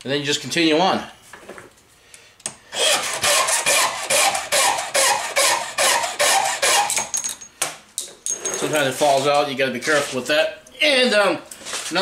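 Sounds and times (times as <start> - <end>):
file rasping on brass case: 2.8 - 7.0.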